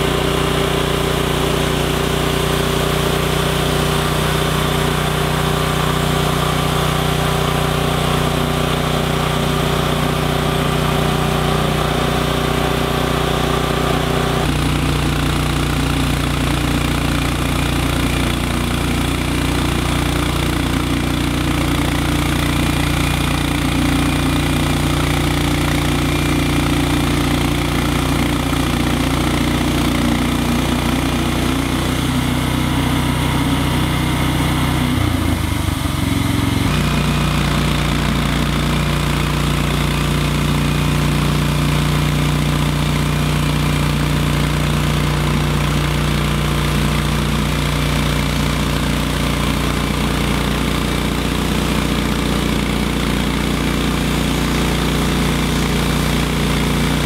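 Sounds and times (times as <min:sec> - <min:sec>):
band sawmill engine running: 0:00.0 - 0:57.0.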